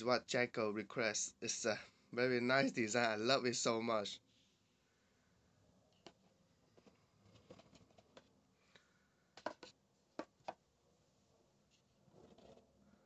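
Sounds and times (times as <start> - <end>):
cardboard boxes set on carpet: 5.8 - 10.7.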